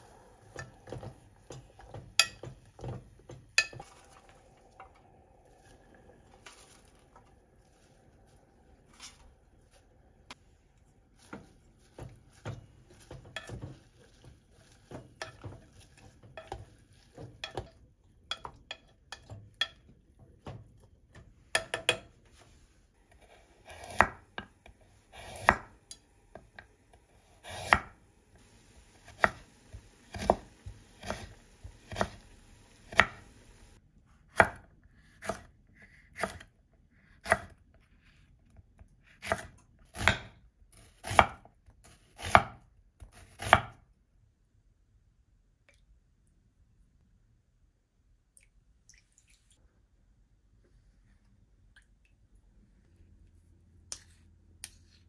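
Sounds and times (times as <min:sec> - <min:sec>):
wooden spatula tapping pot: 0:00.5 - 0:03.9, 0:12.0 - 0:22.1
knife chopping on wooden board: 0:25.2 - 0:25.7, 0:27.4 - 0:27.9, 0:29.0 - 0:32.2, 0:32.9 - 0:33.2, 0:39.2 - 0:40.4.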